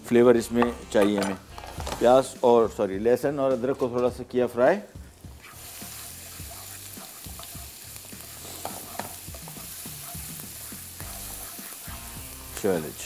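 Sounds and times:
garlic sizzling in hot oil: 4.6 - 13.0.

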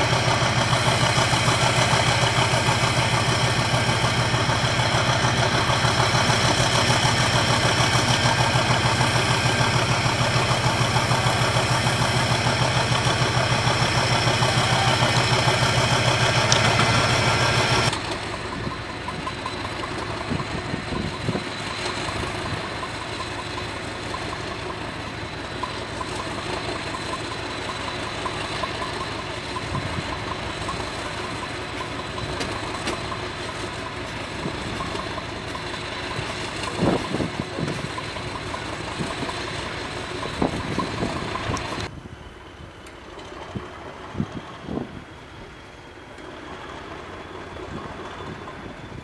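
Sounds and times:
diesel locomotive engine idling: 0.0 - 49.0.

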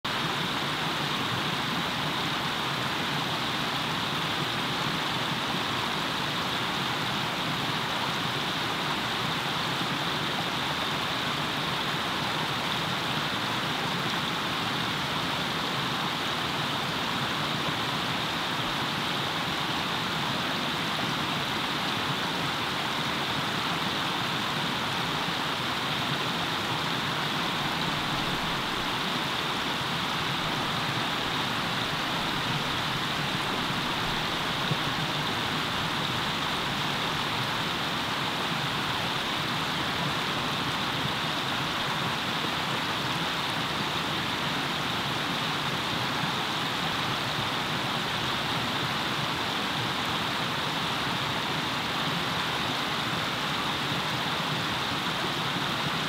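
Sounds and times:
stream cascading over rock: 0.0 - 56.0.

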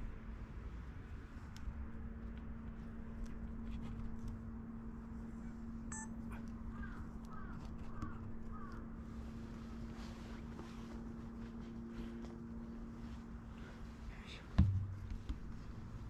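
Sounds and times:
low hum: 0.0 - 16.0
crow cawing: 6.7 - 8.9.

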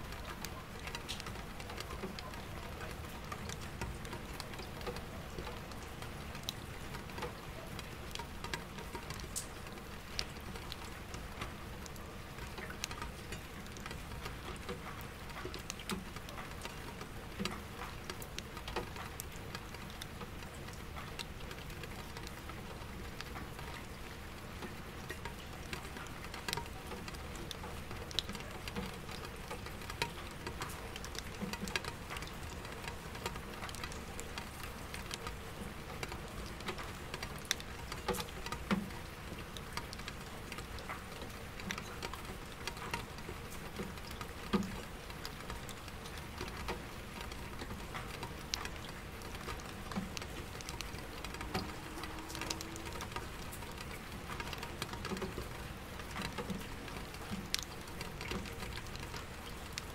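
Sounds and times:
raindrops tapping on bucket: 0.0 - 59.9
raindrops tapping on window glass: 0.0 - 59.9
soft rain: 0.0 - 59.9
distant city traffic hum: 50.4 - 55.0.

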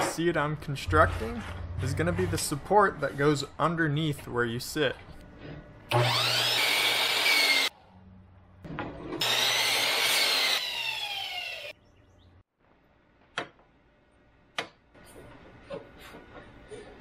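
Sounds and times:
miter saw cutting wood: 5.9 - 7.7, 9.2 - 11.7.

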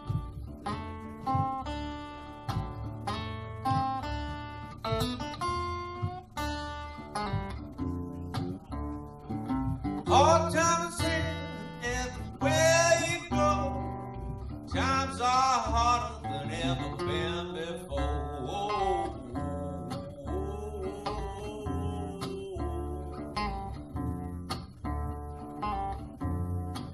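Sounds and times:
acoustic guitar picked and strummed: 0.0 - 26.9
man singing: 10.0 - 14.1, 14.7 - 23.8.

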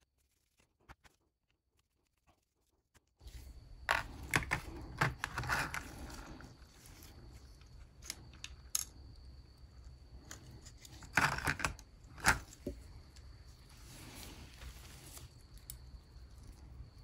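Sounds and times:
small plastic parts clicking: 7.6 - 9.2, 10.2 - 13.3
faint rubbing: 13.5 - 15.4.

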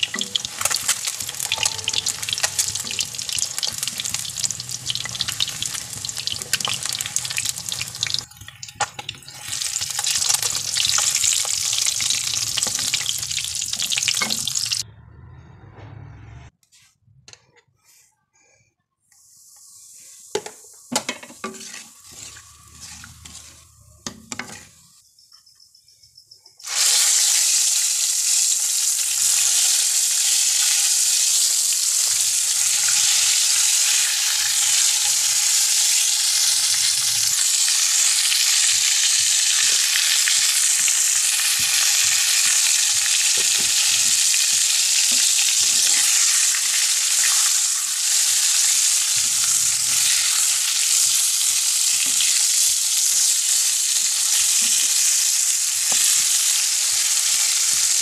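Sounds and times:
eggplants sizzling in hot oil: 0.0 - 14.8, 19.4 - 24.9, 26.6 - 58.0
spatula stirring: 21.3 - 24.9.

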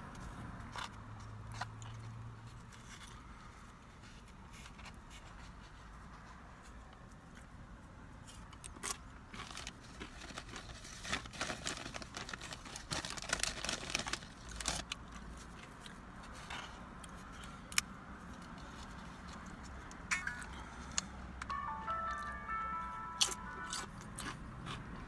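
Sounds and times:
tortilla chips crunching: 8.3 - 25.0.

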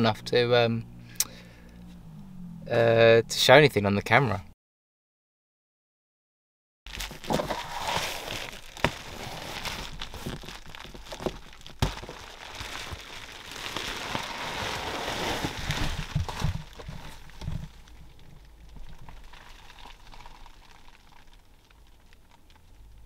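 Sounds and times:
material crinkling and rustling: 6.9 - 23.0.

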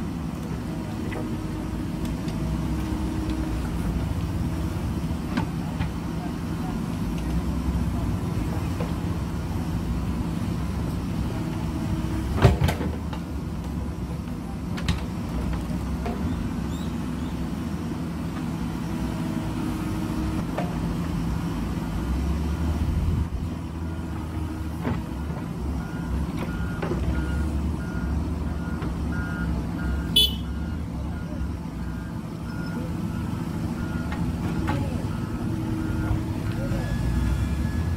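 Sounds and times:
diesel engine running under load: 0.0 - 37.9
faint repeating beep: 29.2 - 32.8.

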